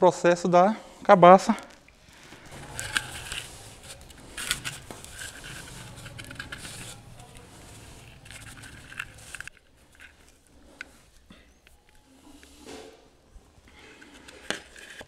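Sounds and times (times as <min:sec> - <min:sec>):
cord scraping against dried gourd: 0:02.0 - 0:11.3.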